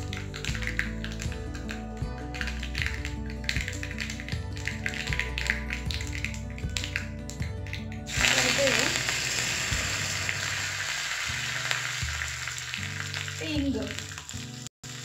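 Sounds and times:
low background music: 0:00.0 - 0:15.0
leaves sizzling in hot ghee: 0:08.1 - 0:15.0.

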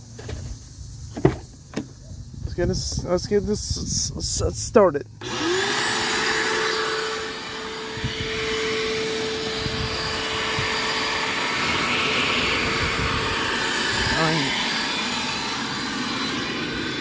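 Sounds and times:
shop vacuum running: 0:05.2 - 0:17.0.

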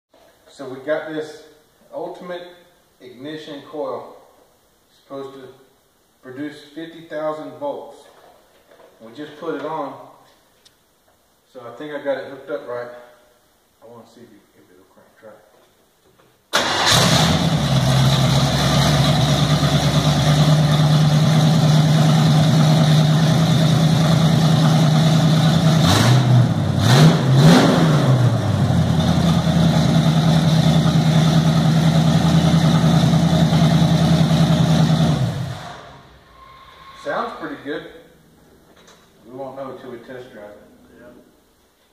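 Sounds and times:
car engine starting and idling: 0:16.5 - 0:37.3
engine revving: 0:16.6 - 0:37.1.

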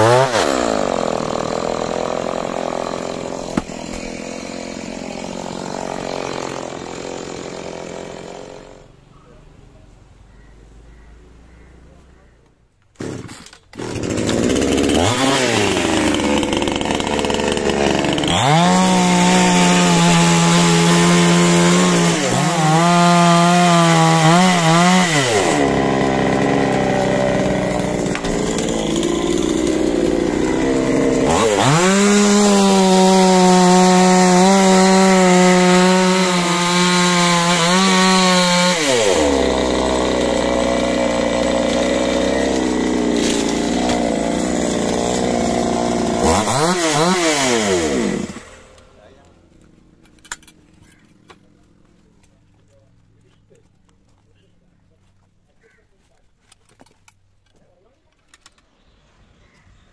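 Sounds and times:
chainsaw cutting wood: 0:00.0 - 0:08.9, 0:12.9 - 0:50.6
chainsaw idling: 0:00.0 - 0:08.9, 0:13.0 - 0:50.0.

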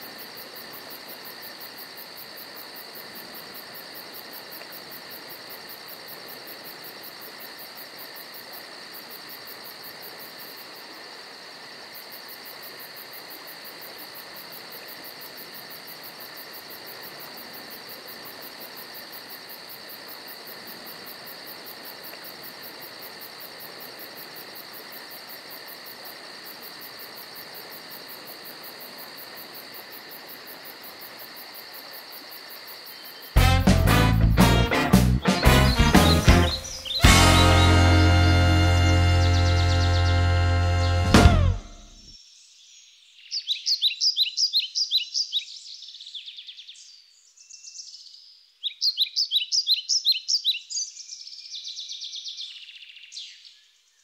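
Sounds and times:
crickets chirring: 0:00.0 - 0:33.4, 0:36.5 - 0:37.0, 0:38.4 - 0:41.0.

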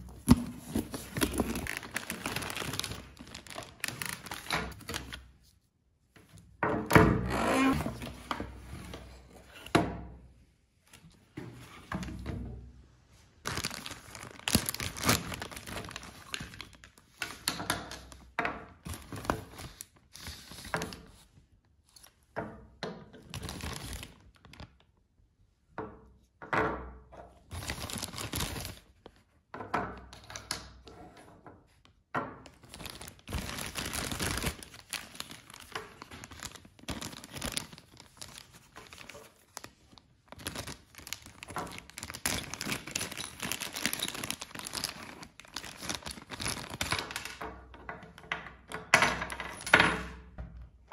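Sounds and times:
plastic bags crinkling: 0:00.0 - 0:05.2, 0:13.4 - 0:17.5, 0:23.2 - 0:24.8, 0:27.5 - 0:29.0, 0:32.5 - 0:47.4.

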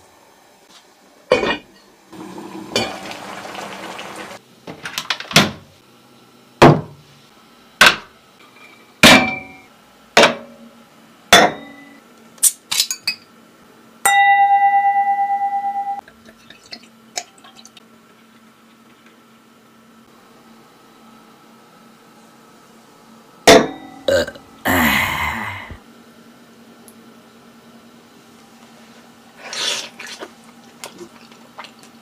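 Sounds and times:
cookware and glassware clinking: 0:01.3 - 0:01.9, 0:02.7 - 0:03.2
ringing note: 0:14.1 - 0:16.0.

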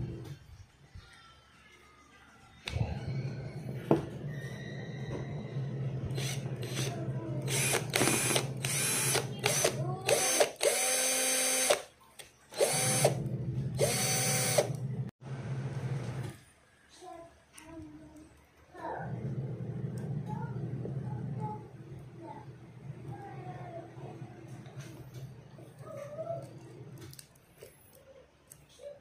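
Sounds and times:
cordless drill motor whining: 0:04.8 - 0:11.9, 0:12.5 - 0:14.9.

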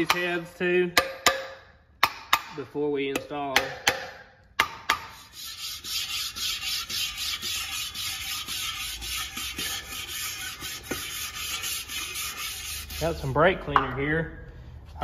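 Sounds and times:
sandpaper rubbing on metal: 0:05.1 - 0:13.4.

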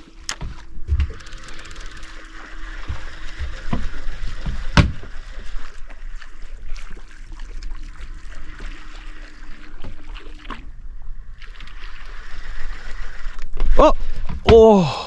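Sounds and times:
boat motor hum: 0:00.0 - 0:15.0
knocks and thump: 0:02.8 - 0:05.1.

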